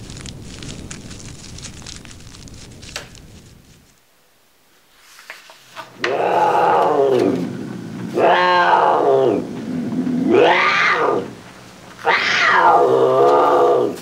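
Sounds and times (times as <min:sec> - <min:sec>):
low steady hum: 0:00.0 - 0:05.1
wailing animal-like calls: 0:06.0 - 0:11.4, 0:12.0 - 0:14.0.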